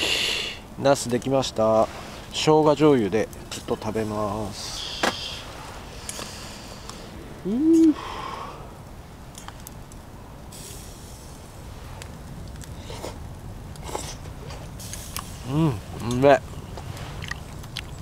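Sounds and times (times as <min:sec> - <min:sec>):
charcoal crackling: 0:00.7 - 0:18.0
man humming: 0:07.4 - 0:08.2, 0:15.4 - 0:16.1.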